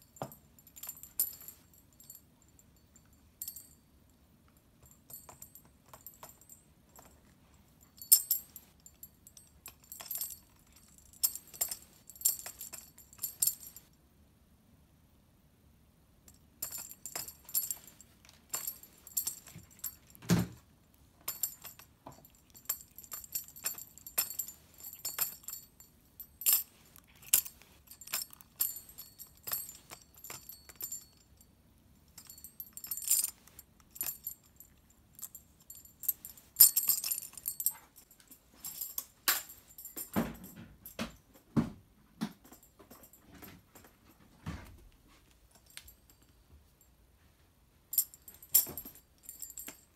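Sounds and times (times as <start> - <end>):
tambourine jingles rattling: 21.3 - 31.3.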